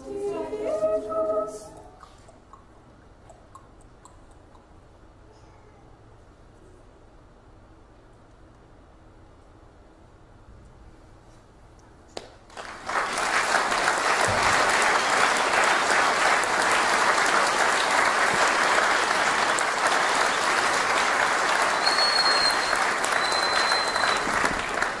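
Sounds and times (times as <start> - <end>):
audience applauding: 12.5 - 25.0.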